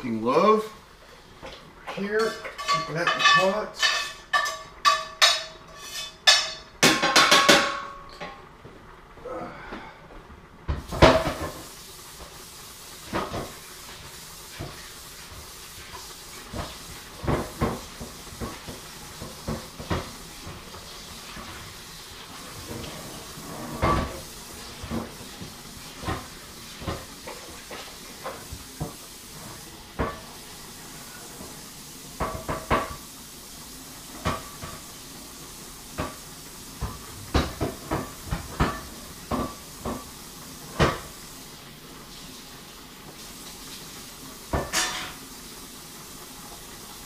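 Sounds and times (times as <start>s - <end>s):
cookware and utensils clattering: 1.4s - 8.5s, 10.8s - 11.6s, 22.4s - 28.9s, 32.2s - 33.0s, 36.8s - 40.1s, 44.5s - 45.3s
hiss of steaming pots: 9.2s - 47.0s.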